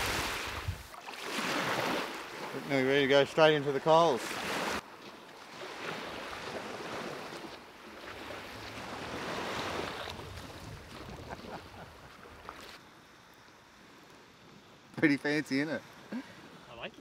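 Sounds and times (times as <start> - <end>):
wind on microphone: 0.0 - 0.9, 9.0 - 12.5
small waves washing onto sand: 0.0 - 17.0.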